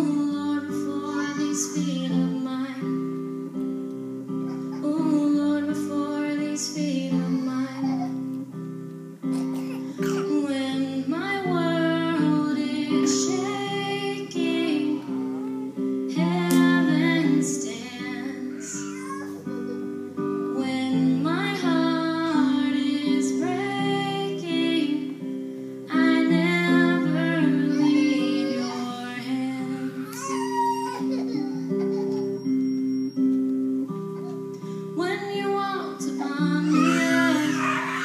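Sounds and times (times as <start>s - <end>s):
woman singing: 0.0s - 3.2s, 4.8s - 8.3s, 10.0s - 19.1s, 20.5s - 31.0s, 34.9s - 38.0s
acoustic guitar chords: 0.0s - 38.0s.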